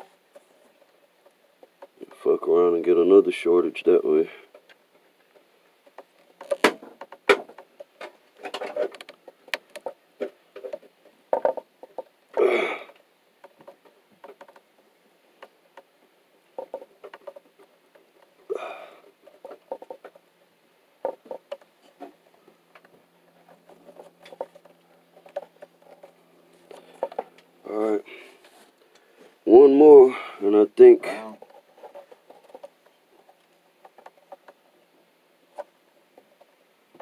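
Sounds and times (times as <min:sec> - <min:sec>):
hands handling electrical wires: 0:05.9 - 0:12.1, 0:21.0 - 0:29.1.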